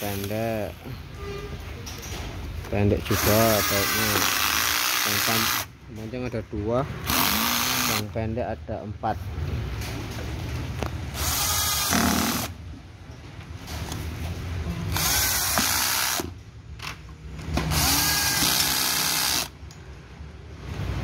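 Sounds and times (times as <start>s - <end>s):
cordless drill driving screws: 3.2s - 5.7s, 7.1s - 8.0s, 11.2s - 12.5s, 14.9s - 16.3s, 17.7s - 19.5s.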